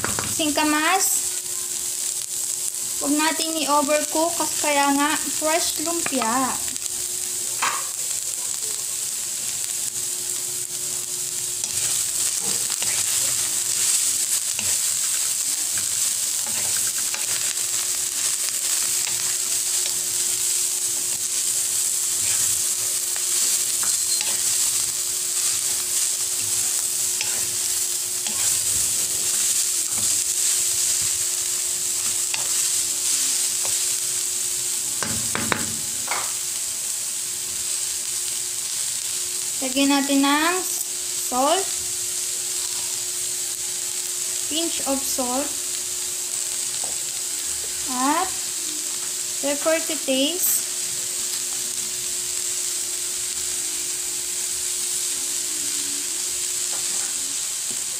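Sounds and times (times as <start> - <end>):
vegetables sizzling in a pan: 0.0 - 57.9
utensil stirring: 11.6 - 33.9.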